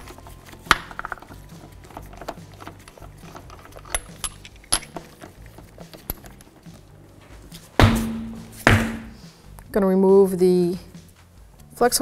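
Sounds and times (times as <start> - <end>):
lug nuts clicking and clinking: 0.0 - 6.9.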